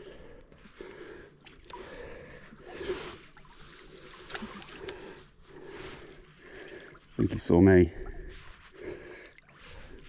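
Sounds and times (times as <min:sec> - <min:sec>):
light ticks: 0:00.4 - 0:01.9, 0:04.3 - 0:05.0.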